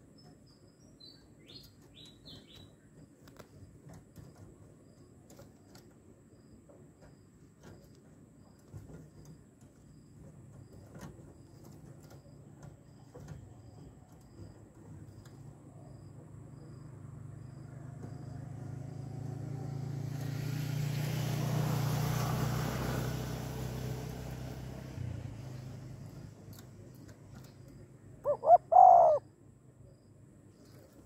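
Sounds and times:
vehicle passing rumble: 8.4s - 29.2s
dove cooing: 28.2s - 29.3s.

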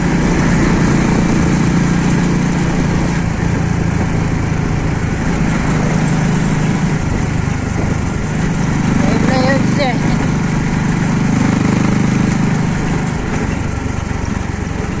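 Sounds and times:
road noise: 0.0s - 15.0s
vehicle engine running: 0.0s - 15.0s.

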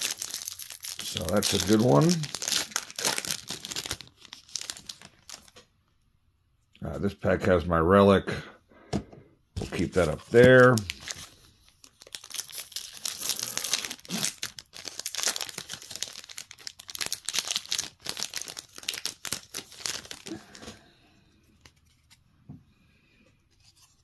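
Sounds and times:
plastic wrapper tearing and crinkling: 0.0s - 5.6s, 9.7s - 20.7s.

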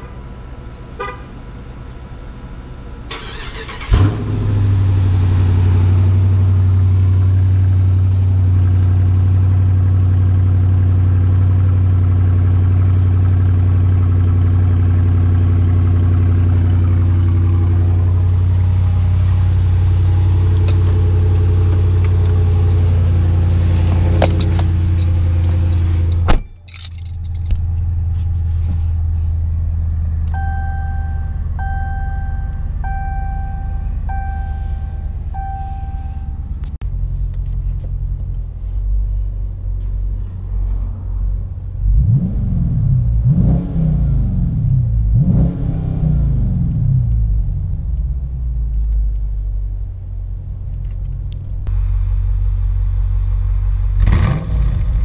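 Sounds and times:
car engine idling: 0.0s - 42.1s.

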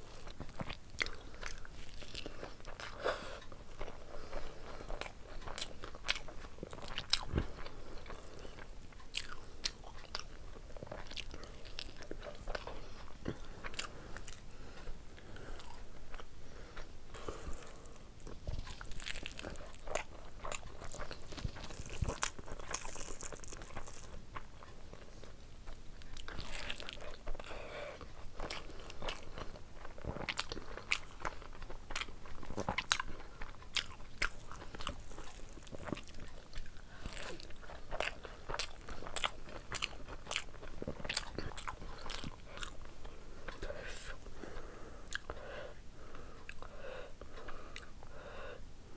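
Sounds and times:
person chewing food: 0.0s - 48.5s
crunchy bites: 17.2s - 24.2s, 28.3s - 42.8s.

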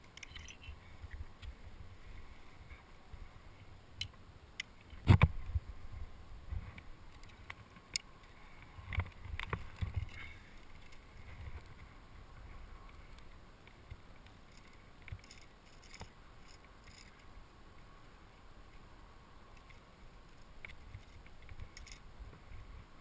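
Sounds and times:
climbing gear clinking: 0.0s - 1.2s, 7.1s - 11.9s, 12.5s - 17.3s, 19.6s - 22.1s.

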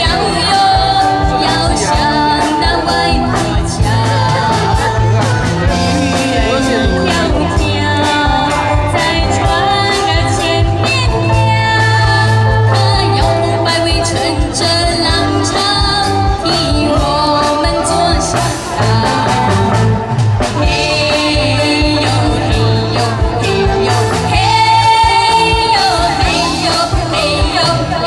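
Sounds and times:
live band music: 0.0s - 28.0s
woman singing: 0.0s - 28.0s
drum beat: 1.1s - 10.7s.

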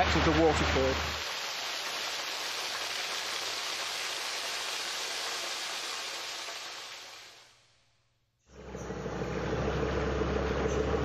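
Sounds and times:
waterfall pouring: 0.0s - 7.6s.

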